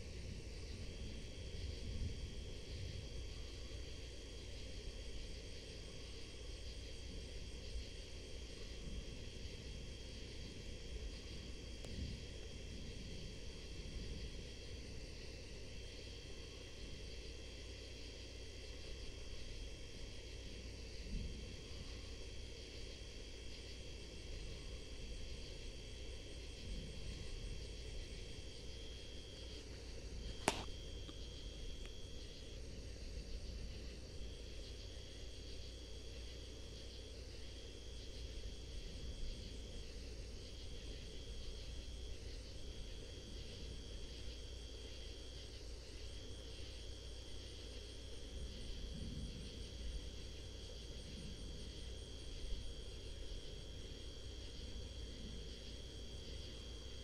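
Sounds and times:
faint fast insect trill: 0.0 - 57.0
sharp click: 30.4 - 30.7.

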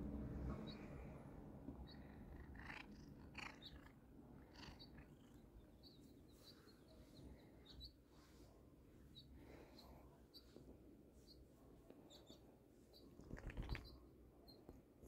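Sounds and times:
cat purring: 1.7 - 6.3, 13.1 - 14.0.

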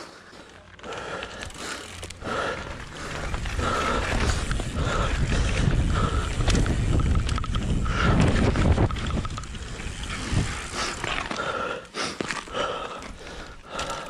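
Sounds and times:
bike tyre noise: 0.0 - 14.0
bike clattering: 0.4 - 14.0
wind rumble on microphone: 3.1 - 11.1.

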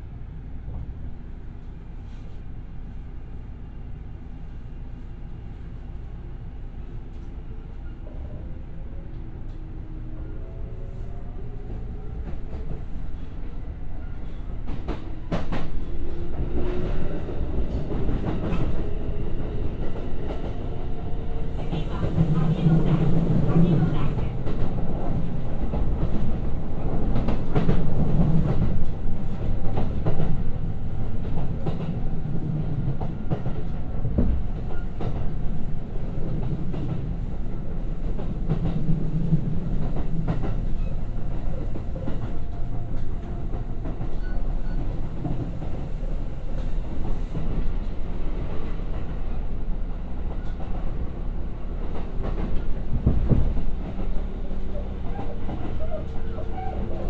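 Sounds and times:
train wheels rumbling: 9.0 - 57.0.

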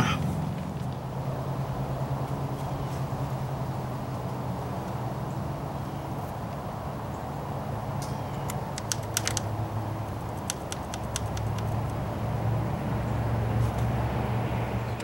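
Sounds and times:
bracket clicking and ticking: 8.4 - 9.6, 10.2 - 12.0.

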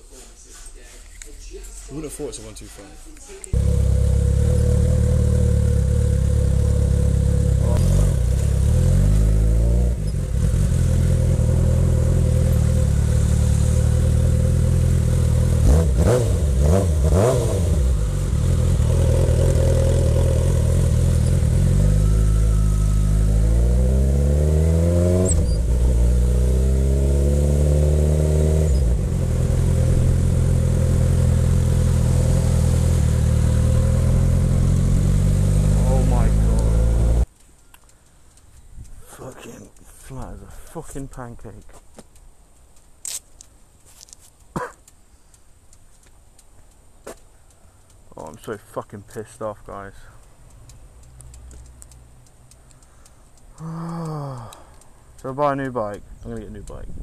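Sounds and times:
motorcycle engine accelerating: 3.6 - 37.3.

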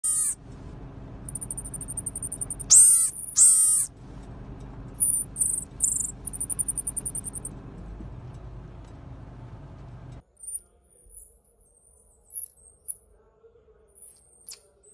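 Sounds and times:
marmosets high-pitched trilling: 0.0 - 0.4, 1.3 - 3.9, 5.0 - 7.5.

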